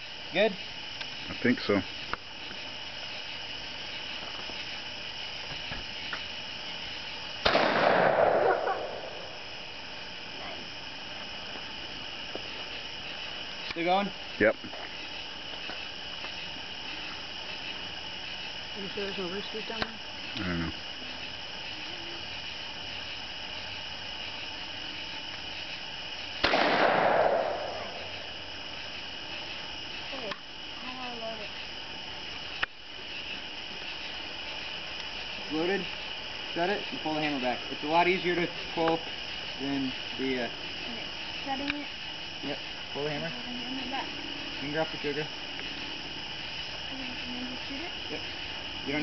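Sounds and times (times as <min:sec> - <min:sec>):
crickets chirping: 0:00.0 - 0:49.0
shotgun shot: 0:07.4 - 0:09.2, 0:26.4 - 0:28.0.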